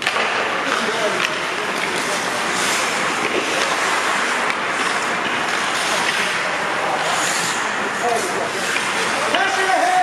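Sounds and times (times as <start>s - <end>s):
ice rink hiss: 0.1s - 10.0s.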